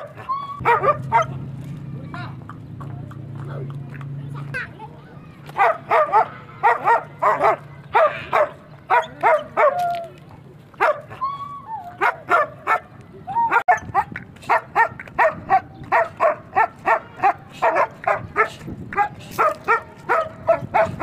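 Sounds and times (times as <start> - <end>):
dog barking: 0.0 - 1.4, 5.6 - 9.8, 10.8 - 11.2, 12.0 - 12.9, 13.5 - 21.0.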